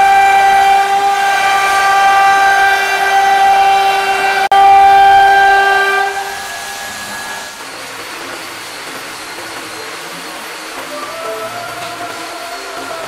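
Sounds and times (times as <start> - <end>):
router spindle high-pitched whine: 0.0 - 13.0
wood cutting noise: 0.0 - 13.0.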